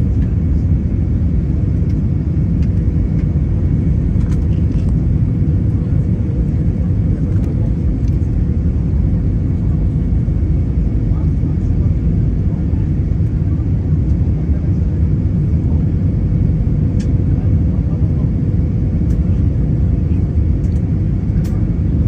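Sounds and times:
airliner cabin engine rumble: 0.0 - 22.0.

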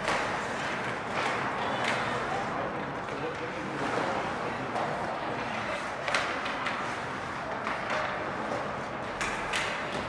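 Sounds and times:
hockey stick hits: 0.0 - 2.2, 4.7 - 6.9, 7.6 - 10.0
steady background noise: 0.0 - 10.0.

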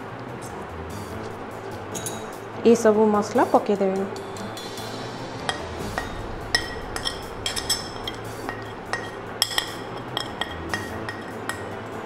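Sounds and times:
ceramic plate clinking on bowl: 5.5 - 11.7.

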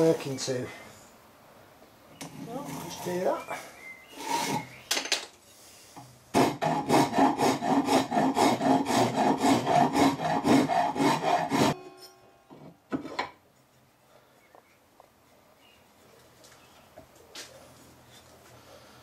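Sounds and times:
rasp filing wood: 6.4 - 11.8.

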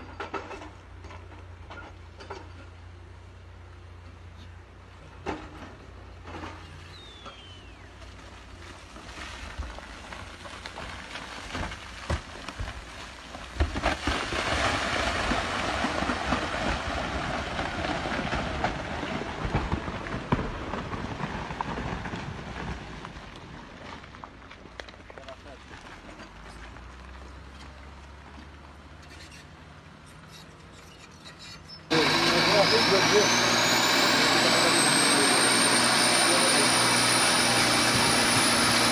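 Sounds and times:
rocks clattering down slope: 7.2 - 28.8.

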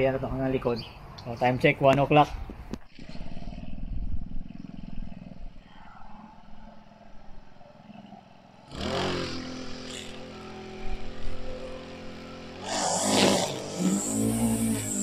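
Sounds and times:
small engine starting and revving: 2.9 - 7.0, 7.8 - 15.0.

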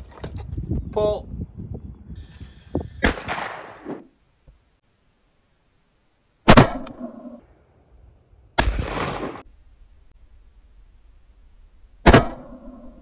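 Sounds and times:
shotgun shots: 3.0 - 4.1, 6.4 - 7.1, 8.6 - 9.5, 12.0 - 12.7.

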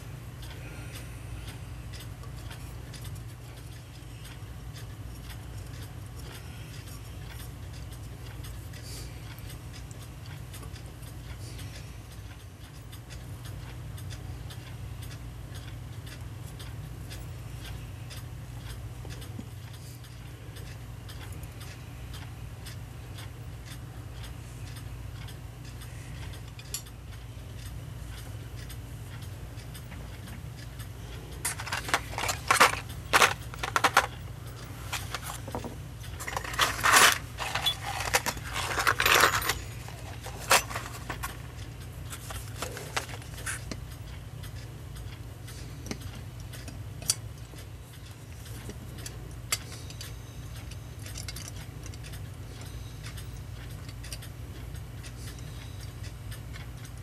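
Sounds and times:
small metal parts clinking: 31.4 - 34.2, 34.9 - 41.5.

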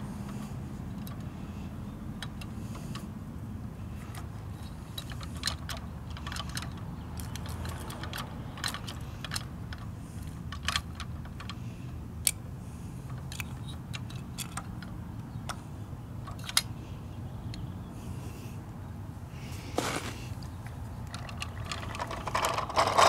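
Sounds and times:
steady low hum: 0.0 - 7.2
plastic toy parts clicking: 4.1 - 11.6, 13.1 - 15.6, 16.2 - 16.7, 21.0 - 23.0.

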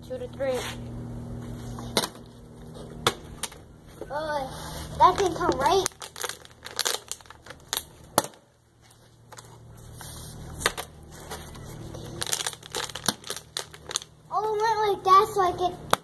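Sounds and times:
plastic bottle crinkling: 5.0 - 8.0, 12.0 - 14.1.

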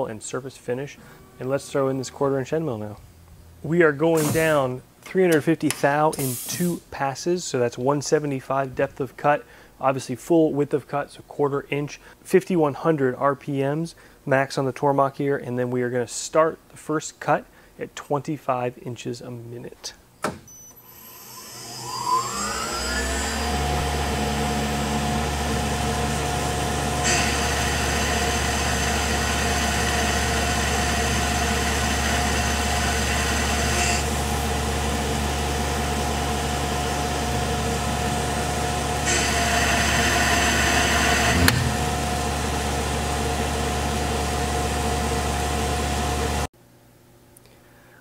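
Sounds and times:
cutting whine: 20.7 - 34.8, 38.9 - 42.5
mill spindle running: 20.8 - 46.5.

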